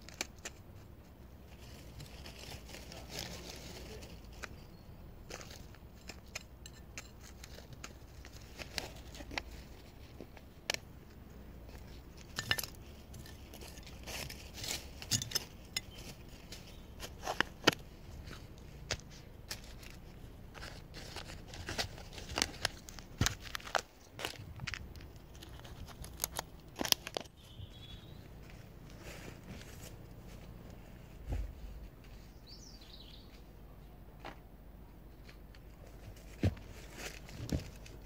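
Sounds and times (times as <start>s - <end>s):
plastic plant pots clicking: 0.0s - 1.2s, 1.9s - 27.4s
gloved hands working soil: 0.0s - 33.2s.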